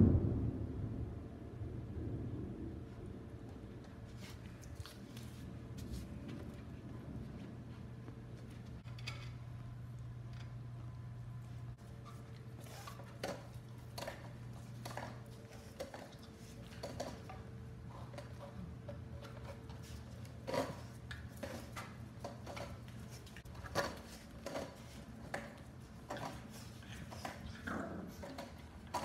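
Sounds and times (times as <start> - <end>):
steady low hum: 0.0 - 29.0
dog claws clicking on tile: 12.0 - 29.0.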